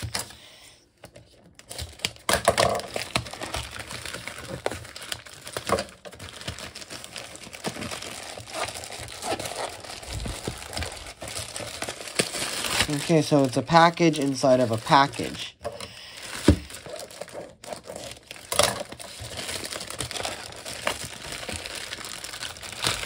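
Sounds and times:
packaging crinkling and rustling: 0:00.0 - 0:00.4, 0:01.0 - 0:23.0.

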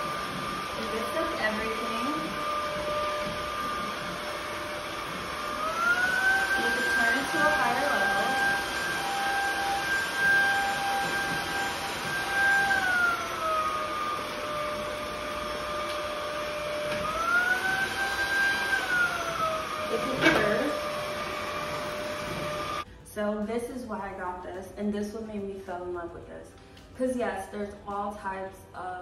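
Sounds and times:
stick vacuum motor whine: 0:00.0 - 0:22.9.

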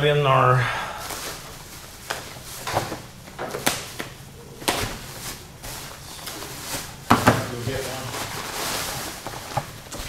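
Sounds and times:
plastic and bubble wrap crinkling: 0:01.0 - 0:10.0.

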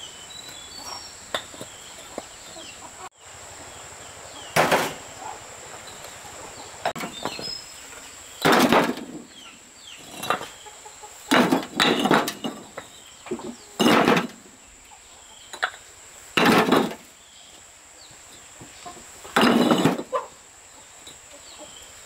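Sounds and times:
chickens clucking: 0:00.0 - 0:22.0
small birds chirping: 0:00.0 - 0:22.0
loud strikes on wood: 0:04.6 - 0:05.0, 0:08.4 - 0:09.4, 0:11.3 - 0:12.6, 0:13.8 - 0:14.5, 0:16.4 - 0:17.1.

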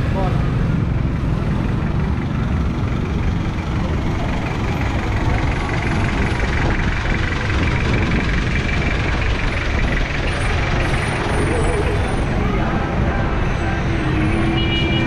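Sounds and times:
diesel engine idling: 0:00.0 - 0:15.0
street traffic: 0:00.0 - 0:15.0.

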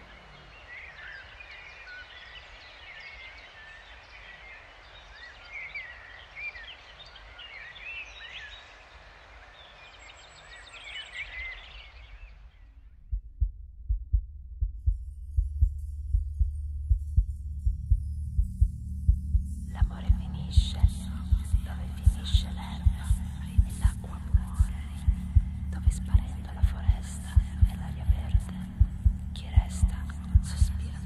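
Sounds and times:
small birds chirping: 0:00.0 - 0:12.8, 0:19.7 - 0:31.0
soft outdoor hiss: 0:00.0 - 0:13.2, 0:14.9 - 0:31.0.

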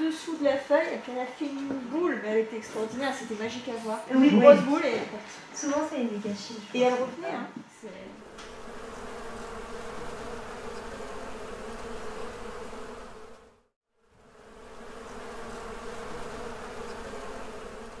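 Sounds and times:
bees buzzing: 0:08.1 - 0:18.0.

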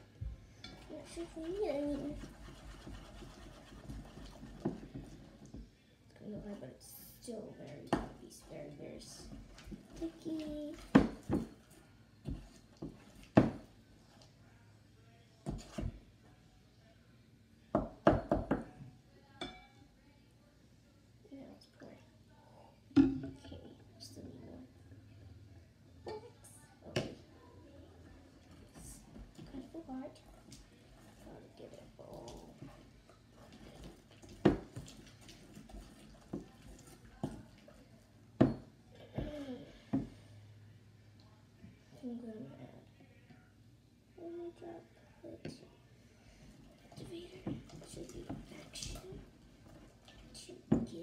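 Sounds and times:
slime being stirred: 0:00.7 - 0:05.6, 0:28.4 - 0:38.1.

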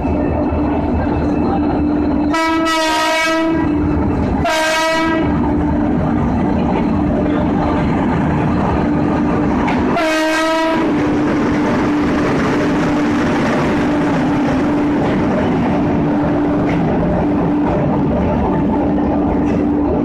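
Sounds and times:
electric locomotive rumbling past: 0:00.0 - 0:20.0
train horn blast: 0:02.3 - 0:03.7, 0:04.4 - 0:05.4, 0:09.9 - 0:11.0.

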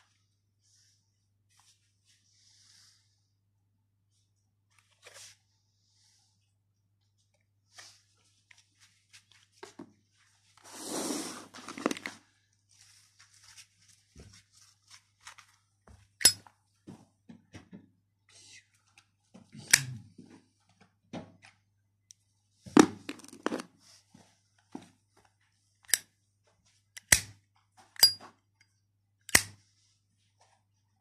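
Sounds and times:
packaging rustling: 0:11.4 - 0:15.7, 0:22.8 - 0:23.7
metal lighters clicking and knocking: 0:16.2 - 0:16.4, 0:28.0 - 0:28.2, 0:29.3 - 0:29.6.

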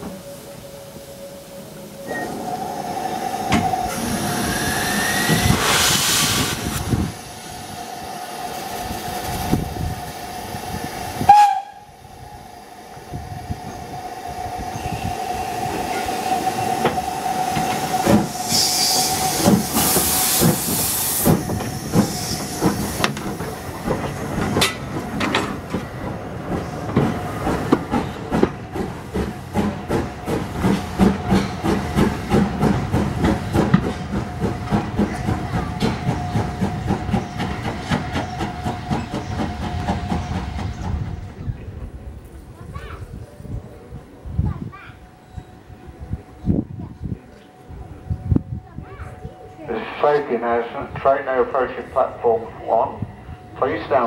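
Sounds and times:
steam locomotive hissing: 0:00.0 - 0:42.5, 0:49.2 - 0:54.0
steam burst: 0:03.4 - 0:10.2, 0:14.8 - 0:24.6.

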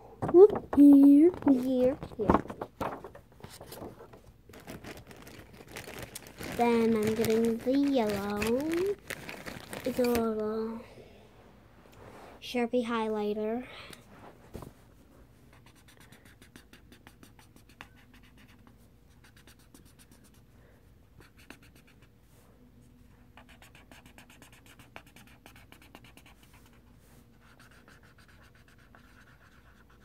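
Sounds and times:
highlighter scribbling on paper: 0:15.5 - 0:20.4, 0:21.2 - 0:22.1, 0:23.4 - 0:30.0.

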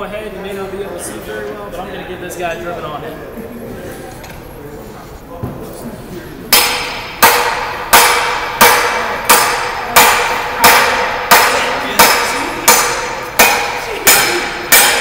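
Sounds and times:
hammer striking metal tool: 0:06.5 - 0:15.0.

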